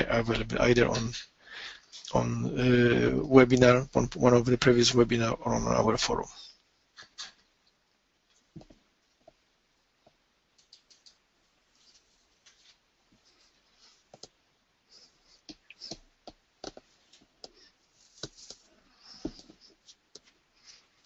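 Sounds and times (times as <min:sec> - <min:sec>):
low background hiss: 0:00.0 - 0:21.0
faint clicks and taps: 0:06.6 - 0:09.4, 0:10.0 - 0:14.4, 0:15.4 - 0:20.4.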